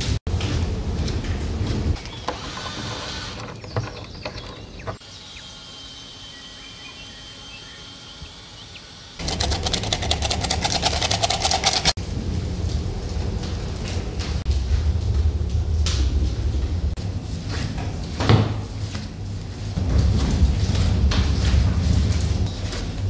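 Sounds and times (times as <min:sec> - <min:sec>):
flour sifter rattling: 0:09.2 - 0:12.0
dough kneaded on wooden table: 0:16.8 - 0:23.0.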